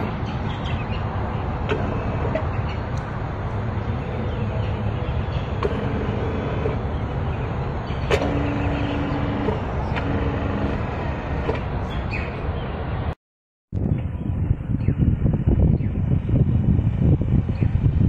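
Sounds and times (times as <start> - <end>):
rushing machine noise: 0.0 - 12.6
electric hum: 1.3 - 12.0.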